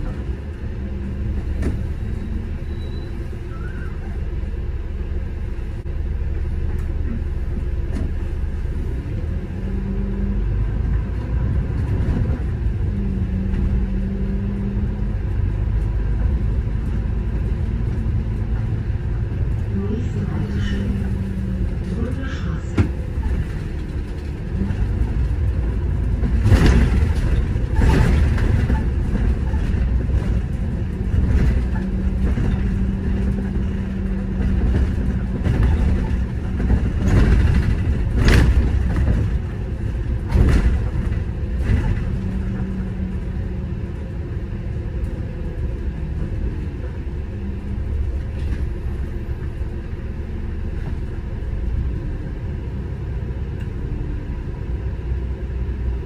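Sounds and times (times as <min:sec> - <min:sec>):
bus engine and road rumble: 0:00.0 - 0:56.0
knocks and rattles from bumps: 0:22.7 - 0:43.4.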